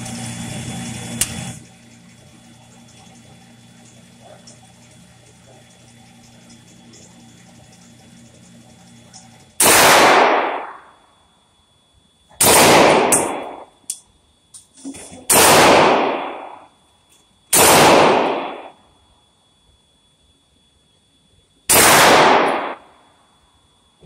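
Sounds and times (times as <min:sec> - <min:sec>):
gunshots echoing indoors: 0:09.6 - 0:11.0, 0:12.4 - 0:13.7, 0:15.3 - 0:16.7, 0:17.5 - 0:18.8, 0:21.7 - 0:22.9.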